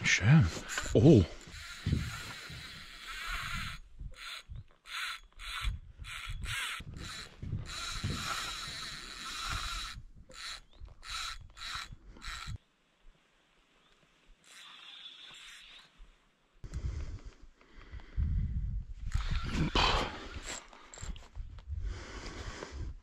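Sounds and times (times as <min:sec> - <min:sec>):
fishing reel whirring: 0:00.5 - 0:12.6, 0:14.4 - 0:16.0, 0:19.1 - 0:19.5.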